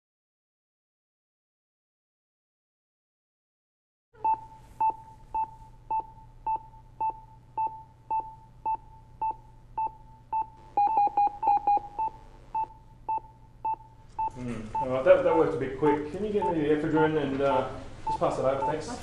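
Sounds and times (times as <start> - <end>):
low hum: 4.2 - 14.8
alarm beeps: 4.2 - 15.5
monitor pulse beeps: 4.2 - 19.0.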